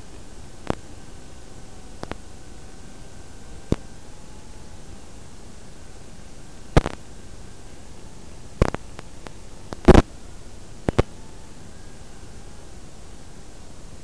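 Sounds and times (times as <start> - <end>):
sharp crackles: 0.0 - 4.0, 4.8 - 11.3
static hiss: 0.0 - 14.0.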